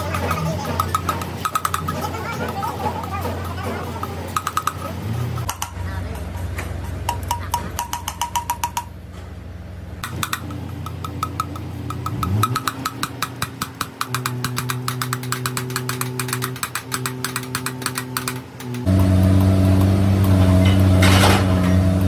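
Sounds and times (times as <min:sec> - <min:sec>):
electric motor ticking: 0:00.0 - 0:05.8, 0:10.0 - 0:20.4
motor whine and hum: 0:18.3 - 0:22.0.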